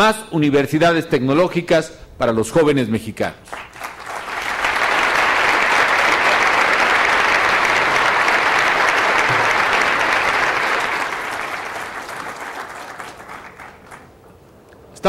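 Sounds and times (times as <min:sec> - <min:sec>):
audience applauding: 0:03.5 - 0:14.2.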